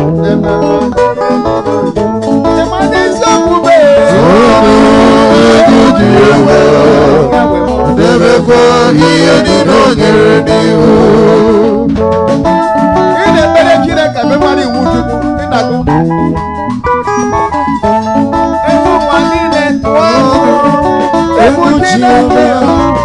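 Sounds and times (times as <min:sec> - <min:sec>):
drum kit: 0:00.0 - 0:23.0
keyboard playing: 0:00.0 - 0:23.0
person singing with vibrato: 0:02.5 - 0:12.0, 0:18.6 - 0:23.0.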